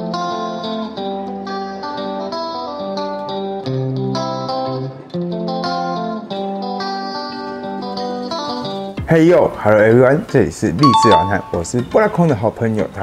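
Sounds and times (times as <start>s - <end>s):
plucked guitar melody: 10.8s - 11.8s.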